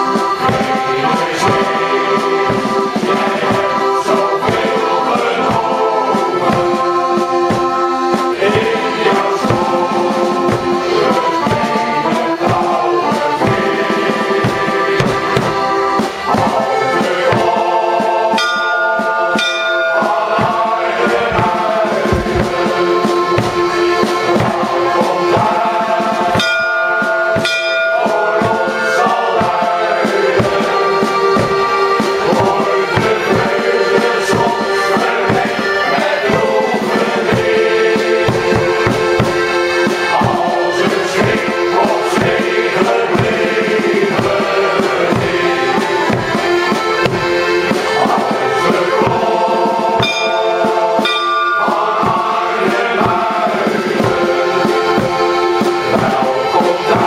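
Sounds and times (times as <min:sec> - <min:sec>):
men's choir singing: 0:00.0 - 0:57.0
piano accordion: 0:00.0 - 0:57.0
bass drum beat: 0:13.4 - 0:18.0, 0:19.5 - 0:26.6.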